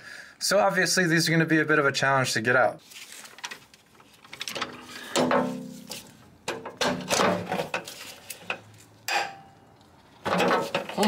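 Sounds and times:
ringing metal clank: 9.1 - 9.6.

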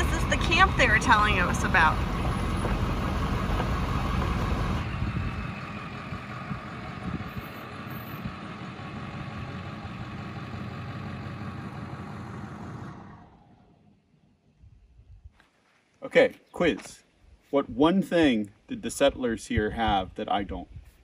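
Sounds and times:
pickup truck engine running: 0.0 - 13.7.

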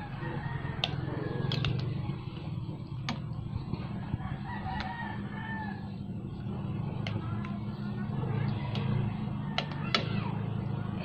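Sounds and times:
rooster crowing: 0.0 - 1.8, 4.0 - 6.0
steady low rumble: 0.0 - 11.0
sharp clicks: 0.8 - 2.0.

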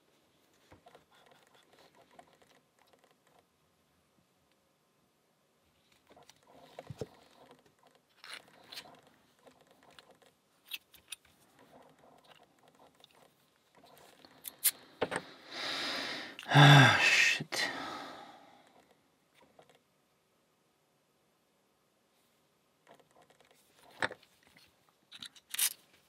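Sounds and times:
lock parts clicking and rattling: 6.1 - 15.2, 22.8 - 25.9
breathy noise with voiced note: 14.7 - 18.8.

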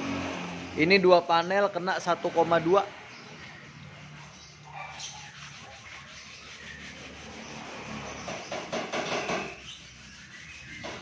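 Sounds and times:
sandpaper rubbing on filler: 5.0 - 11.0.

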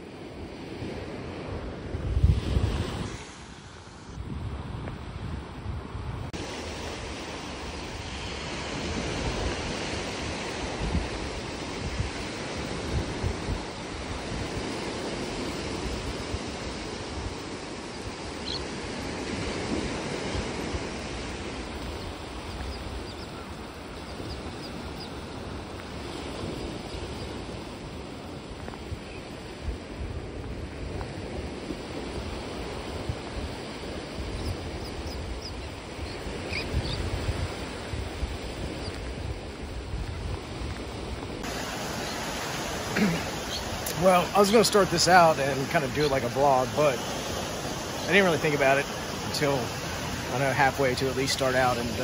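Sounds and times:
small surf washing on sand: 0.0 - 52.0
wind gusting on microphone: 0.0 - 52.0.

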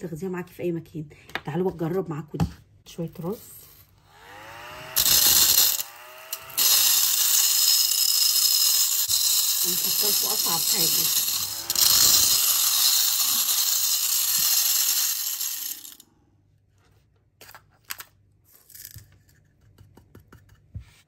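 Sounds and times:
handheld vacuum whirring: 3.8 - 16.0.

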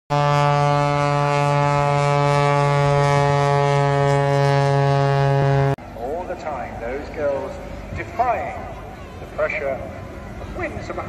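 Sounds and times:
low horn-like drone: 0.1 - 5.8.

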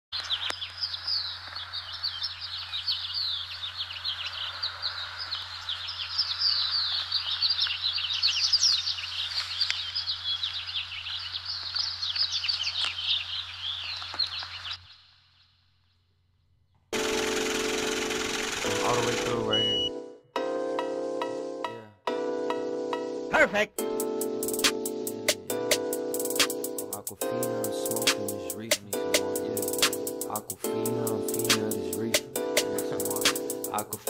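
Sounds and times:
small birds chirping: 0.1 - 17.0, 18.7 - 19.9
music: 17.0 - 34.0.

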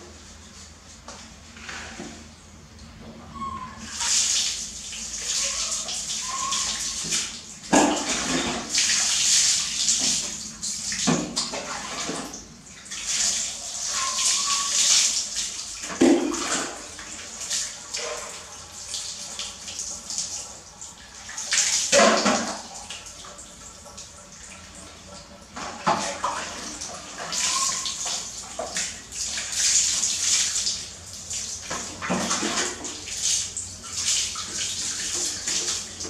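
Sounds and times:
water pouring and splashing: 3.8 - 36.0
dipper knocking bucket: 7.0 - 8.7.

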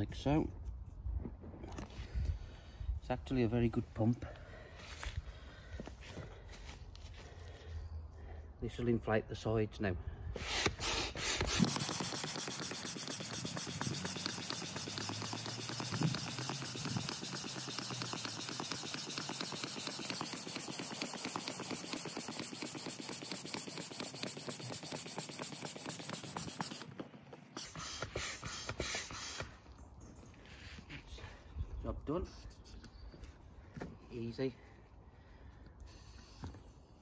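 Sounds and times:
hand pump rushing air: 10.3 - 29.6, 35.8 - 36.9.

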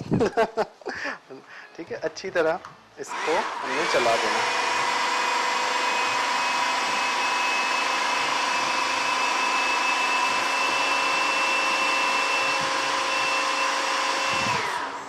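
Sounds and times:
food processor motor whining: 3.1 - 15.0.

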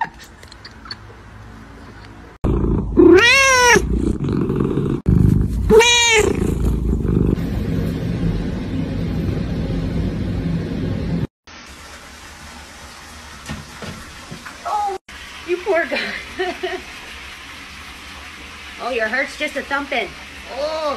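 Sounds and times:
cat purring: 2.4 - 7.6
cat meowing: 3.0 - 3.9, 5.7 - 6.6.

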